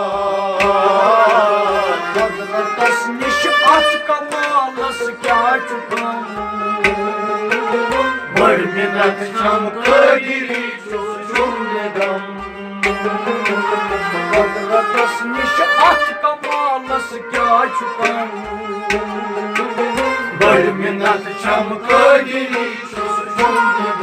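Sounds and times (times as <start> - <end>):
bowed sarangi: 0.0 - 24.0
harmonium: 0.0 - 24.0
plucked rabab: 7.9 - 9.2, 20.0 - 22.7
clay pot drum beat: 8.3 - 8.8.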